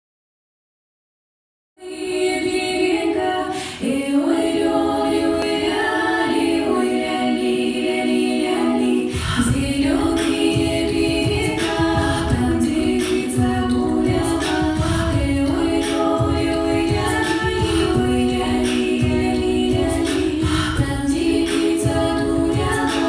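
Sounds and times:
women's choir singing in harmony: 1.8 - 23.0
low rhythmic beat: 9.2 - 23.0.

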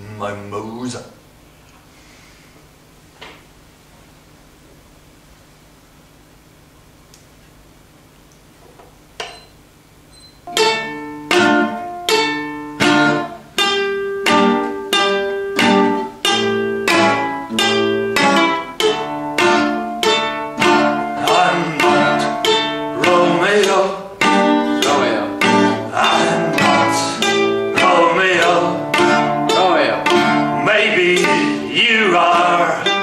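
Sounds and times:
acoustic guitars strumming chords: 10.4 - 33.0.

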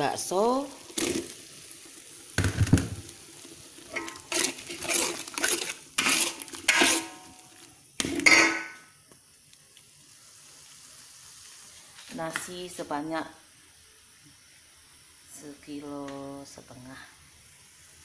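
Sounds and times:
faint sizzle: 0.0 - 18.0
metal spatula scraping frying pan: 3.9 - 8.8.

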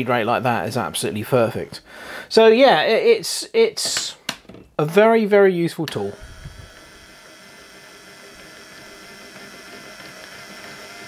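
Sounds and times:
gear motor whining: 6.0 - 11.0.

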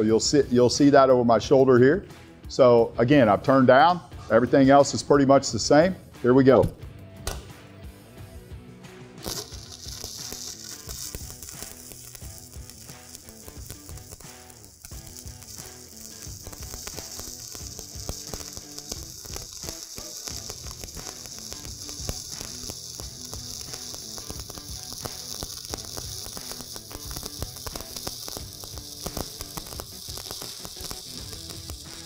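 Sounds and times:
welding arc crackling and popping: 9.2 - 32.0.

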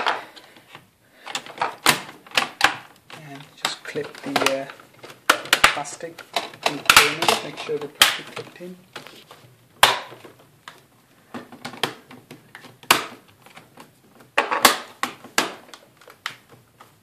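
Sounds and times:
plastic clips snapping into place: 0.0 - 9.1, 9.8 - 16.9.

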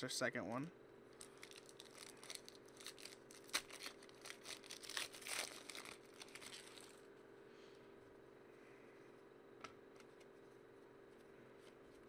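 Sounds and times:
foil wrapper crinkling: 1.2 - 7.0.

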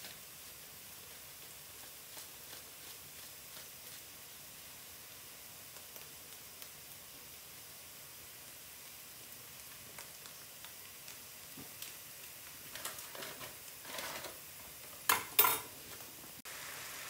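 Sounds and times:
loud foil crinkling: 12.5 - 14.4.

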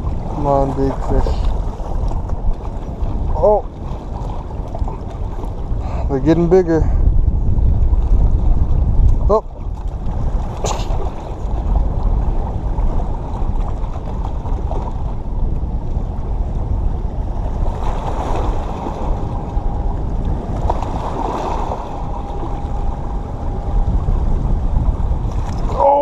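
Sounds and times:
waves washing against rocks: 0.0 - 6.8, 17.3 - 26.0
wind noise on microphone: 0.0 - 26.0.

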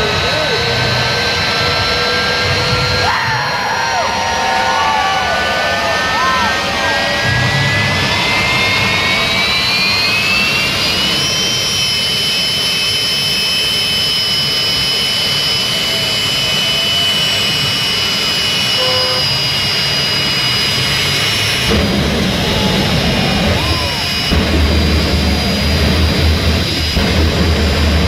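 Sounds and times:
loud exhaust rush: 0.0 - 28.0
turbine engine whine: 0.0 - 28.0.

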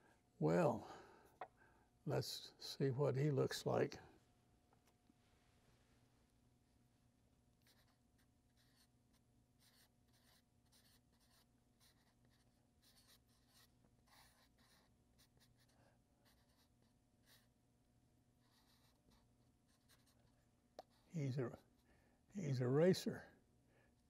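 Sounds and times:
marker scratching on paper: 7.6 - 17.5, 18.4 - 21.8.

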